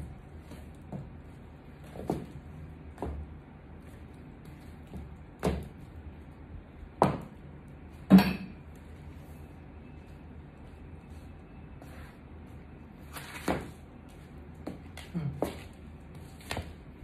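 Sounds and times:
heels stepping on tiled floor: 0.0s - 6.3s.

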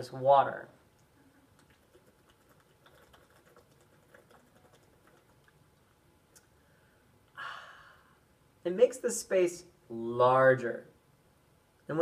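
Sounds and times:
breathy rush of air: 6.6s - 8.2s.

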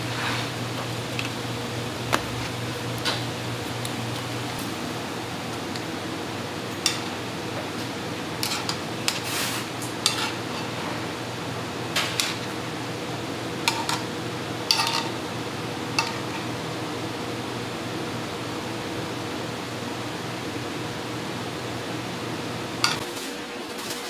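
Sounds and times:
steady background hum: 0.0s - 24.0s
metal tongs clinking on pan: 13.7s - 14.0s, 14.7s - 15.2s, 16.0s - 16.2s.

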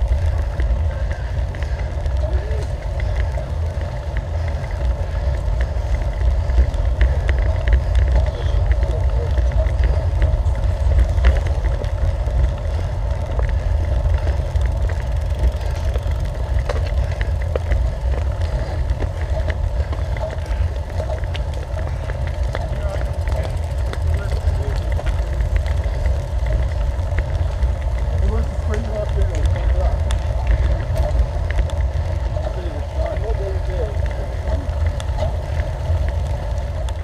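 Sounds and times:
bicycle tyre and road noise: 0.0s - 37.0s
wind rumbling on microphone: 0.0s - 37.0s.

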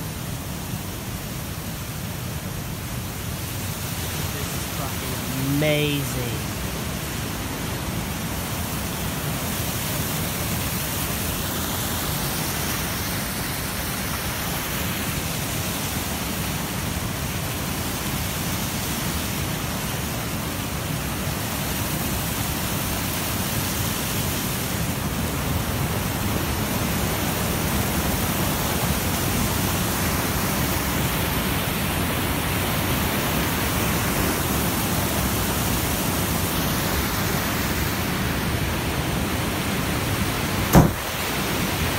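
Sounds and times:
stream rushing over rocks: 0.0s - 41.9s.

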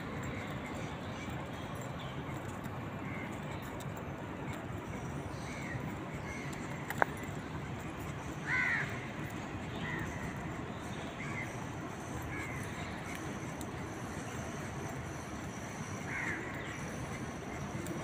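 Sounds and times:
steady background noise: 0.0s - 18.0s
crow cawing: 8.4s - 9.1s, 16.1s - 16.5s.

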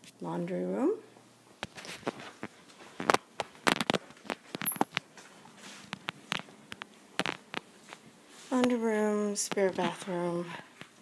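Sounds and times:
footsteps on hard floor: 1.6s - 8.8s.

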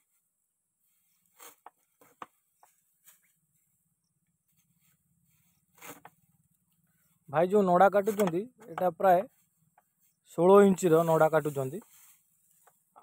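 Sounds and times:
straw cutter chopping knocks: 8.0s - 8.9s.

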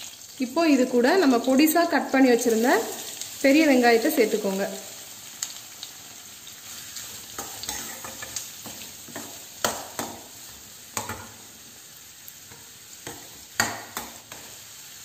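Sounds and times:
onions sizzling in hot oil: 0.0s - 15.0s
spoon knocking against pan: 9.1s - 10.2s, 11.0s - 11.4s, 13.0s - 14.4s.

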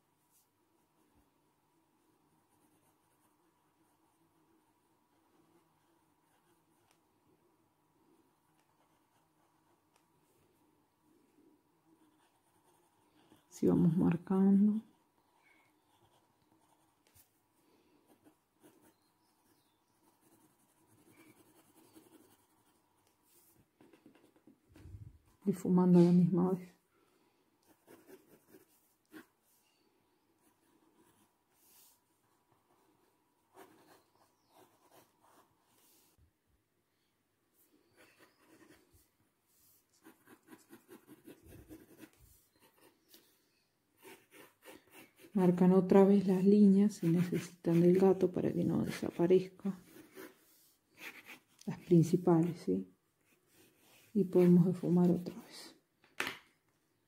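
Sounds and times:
pencil scratching on paper: 2.0s - 7.0s, 8.4s - 10.0s, 11.8s - 24.6s, 27.6s - 29.6s, 30.4s - 36.2s, 37.8s - 43.4s, 44.0s - 55.6s.

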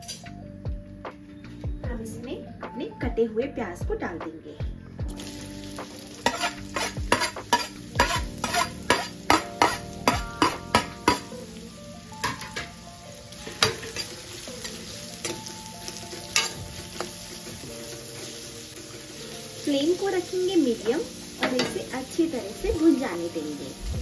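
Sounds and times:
onions sizzling in hot oil: 5.1s - 24.0s
metal spoon clinking in pan: 6.2s - 11.3s, 13.4s - 14.2s, 16.3s - 16.6s.

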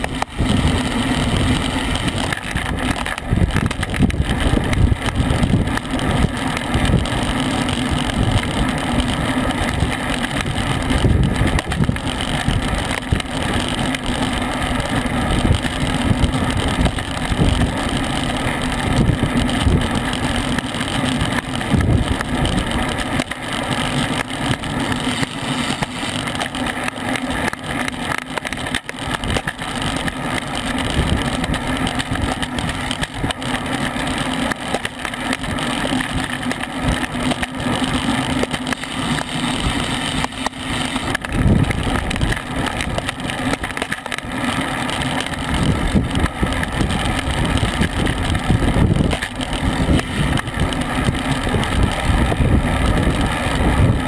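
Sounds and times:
wind buffeting microphone: 0.0s - 23.2s, 39.0s - 54.0s
bicycle tyre hum on road: 0.0s - 54.0s.

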